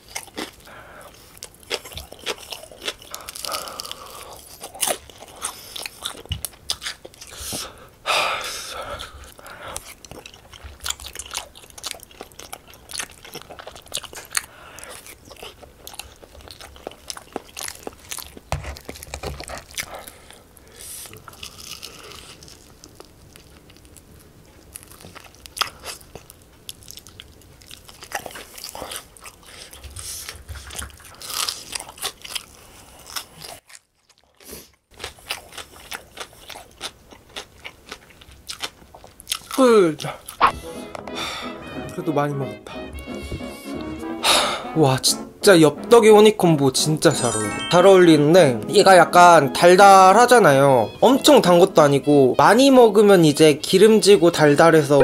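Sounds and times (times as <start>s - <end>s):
crunchy chewing: 0.0s - 7.9s, 8.8s - 40.5s.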